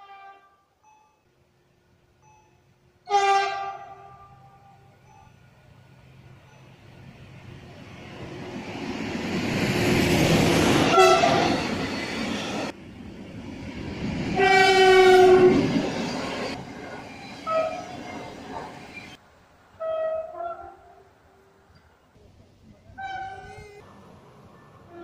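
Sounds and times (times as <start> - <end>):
train horn blasts: 0.0 - 0.8, 3.0 - 4.9, 10.8 - 11.8, 14.4 - 15.7, 17.4 - 17.9, 19.8 - 21.1, 23.0 - 23.8
train rumble and wheel clatter: 1.8 - 25.0.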